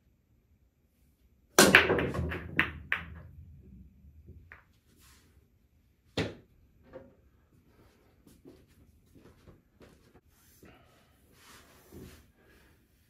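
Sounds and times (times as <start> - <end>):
pool balls clacking: 1.6 - 4.7.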